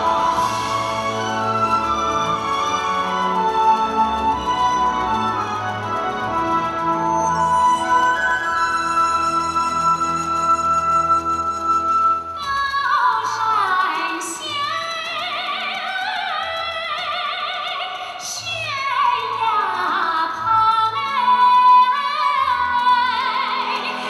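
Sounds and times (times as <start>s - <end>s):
instrumental accompaniment: 0.0s - 16.0s
woman singing operatically: 12.4s - 24.0s.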